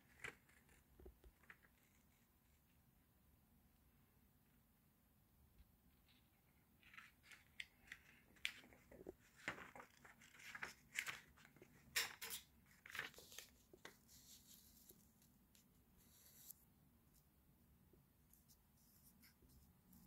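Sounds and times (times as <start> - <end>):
plastic sheet and paper crinkling: 0.0 - 2.2, 6.0 - 15.4.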